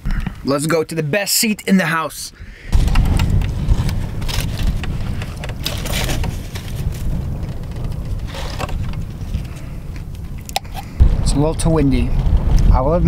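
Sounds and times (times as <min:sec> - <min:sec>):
wind buffeting microphone: 0:02.4 - 0:13.0
short crackles: 0:02.8 - 0:13.0.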